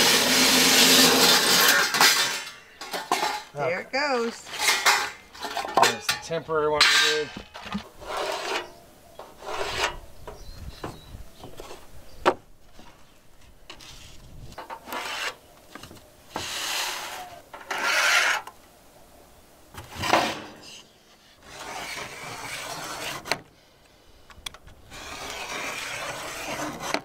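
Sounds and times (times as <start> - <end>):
metal sheet and board scraping: 0.0 - 10.1, 13.7 - 15.4, 16.3 - 18.5, 19.8 - 23.4, 24.8 - 27.0.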